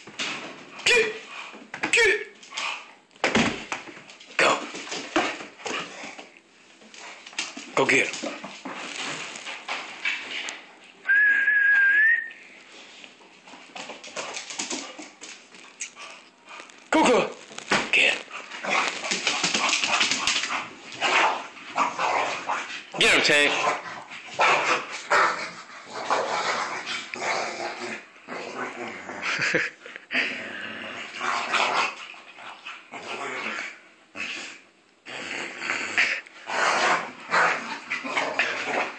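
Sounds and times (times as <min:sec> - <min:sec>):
high whistled note: 0:11.1 - 0:12.4
faint scuffling and clicks: 0:12.6 - 0:20.6
dogs growling: 0:18.1 - 0:38.9.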